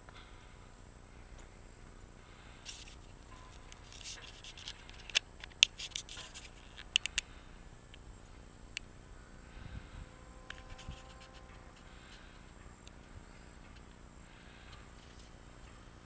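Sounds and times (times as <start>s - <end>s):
faint steady high tone: 3.2s - 3.9s.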